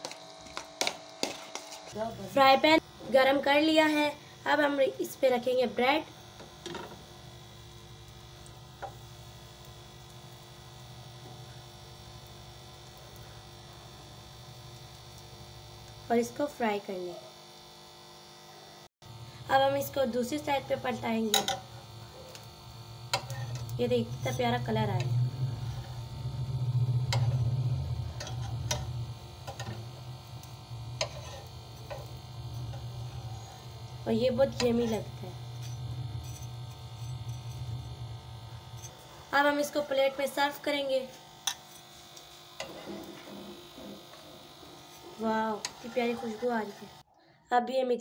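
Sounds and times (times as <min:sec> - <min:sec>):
low electrical hum: 0:00.0 - 0:47.0.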